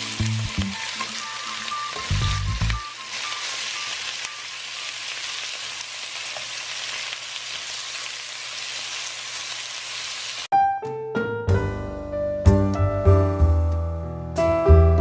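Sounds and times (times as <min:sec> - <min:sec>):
piano music: 0:00.0 - 0:04.9, 0:10.5 - 0:15.0
chicken sizzling in a pan: 0:00.0 - 0:10.5.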